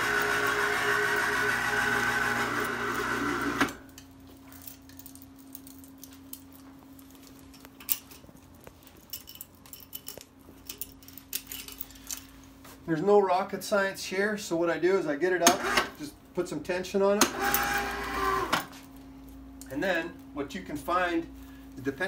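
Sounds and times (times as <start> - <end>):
winch motor running: 0.0 - 3.8, 15.4 - 16.0, 17.2 - 18.7
low steady hum: 3.8 - 22.0
metallic chain clinks: 7.3 - 12.4.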